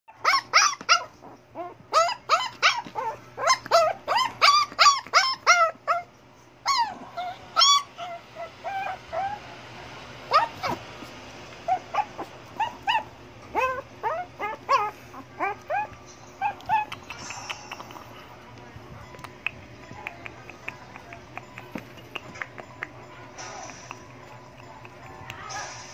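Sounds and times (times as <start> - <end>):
dog whining: 0.1 - 9.6, 10.2 - 11.0, 11.6 - 18.2.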